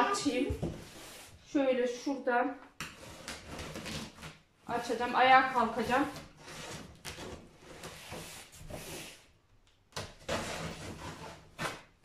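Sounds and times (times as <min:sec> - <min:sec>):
packing tape peeled off cardboard: 0:03.0 - 0:04.4.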